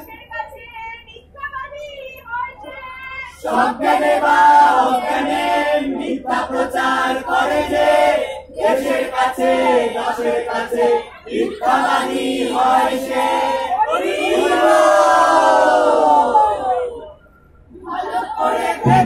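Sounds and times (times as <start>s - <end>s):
group singing: 3.4s - 16.2s, 17.7s - 19.0s.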